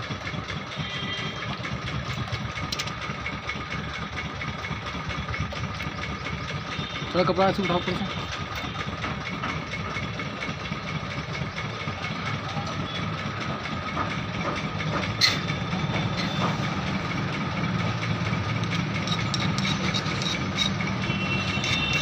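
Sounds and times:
engine idling: 0.0 - 22.0
metal file scraping: 15.1 - 15.5, 18.2 - 22.0.

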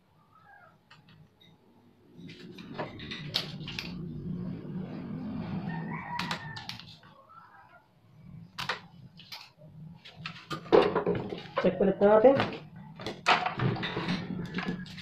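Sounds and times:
rooster crowing: 5.4 - 7.8, 14.1 - 15.0.

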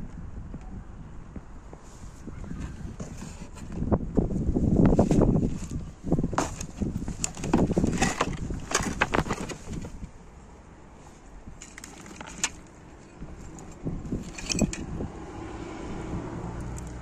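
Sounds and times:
plastic parts rattling in a box: 6.4 - 10.0, 11.6 - 12.7, 13.6 - 14.8.

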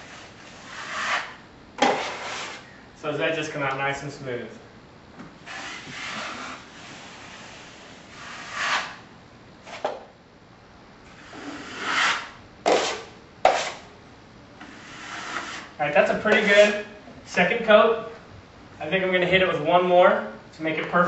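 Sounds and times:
taping knife scraping compound: 0.0 - 2.7, 5.4 - 9.0, 11.2 - 13.9, 14.6 - 16.9.

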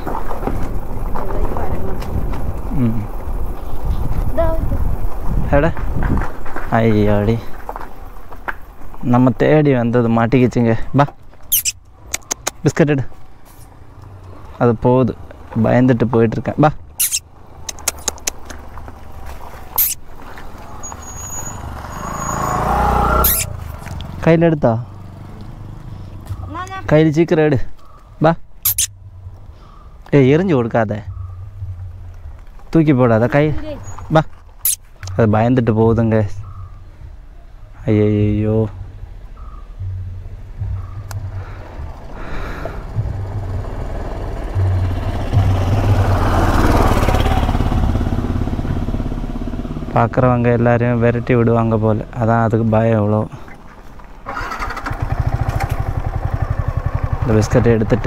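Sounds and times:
vehicle engine approaching: 0.0 - 37.3, 37.9 - 58.0
motorcycle engine running: 39.4 - 51.1, 54.3 - 58.0.

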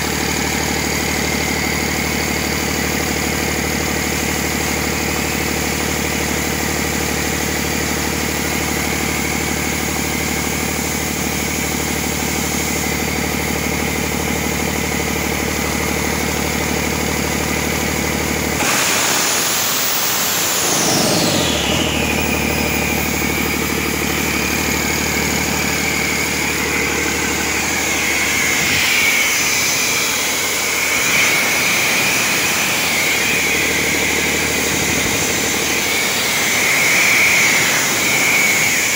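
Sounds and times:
diesel engine idling and revving: 0.0 - 38.9
turbo whine: 0.0 - 38.9.

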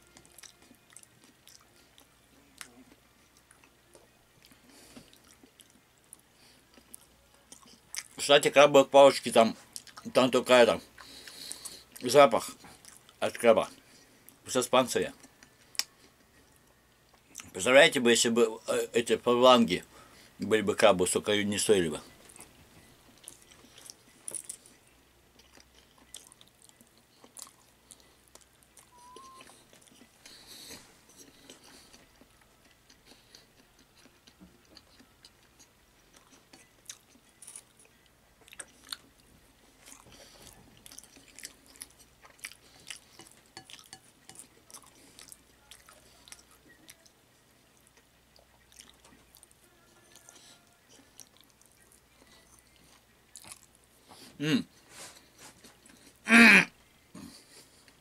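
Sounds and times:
person chewing salad: 0.0 - 8.2, 9.6 - 10.2, 10.8 - 14.4, 15.2 - 17.5, 22.2 - 56.2.

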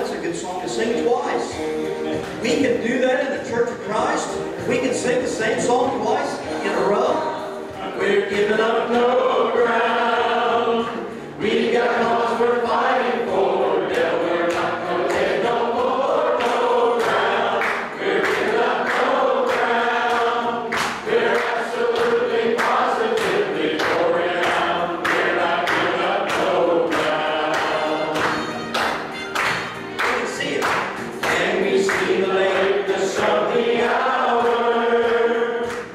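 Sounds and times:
congregation singing: 0.0 - 35.9
steady beat of sharp strokes: 7.7 - 35.9.

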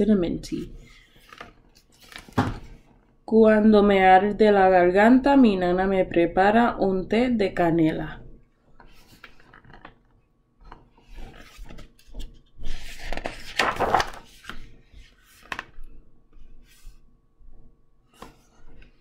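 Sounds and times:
book pages turning: 0.6 - 3.1, 8.8 - 19.0.

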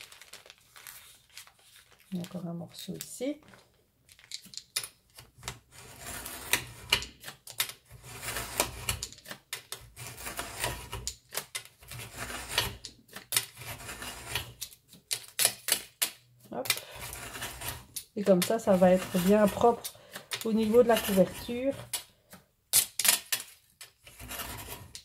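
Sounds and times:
utility knife cutting paper: 5.8 - 9.0, 16.8 - 22.0, 24.1 - 25.0.

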